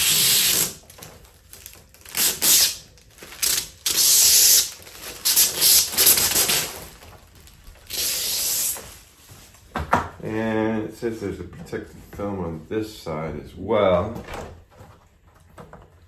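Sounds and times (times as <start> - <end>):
plastic film crinkling: 0.2 - 9.7.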